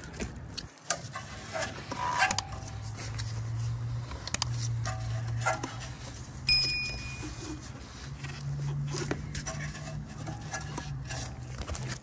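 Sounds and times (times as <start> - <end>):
rubber hose scraping and handling: 0.0 - 12.0
low steady hum: 1.2 - 12.0
bell chime: 6.5 - 7.4.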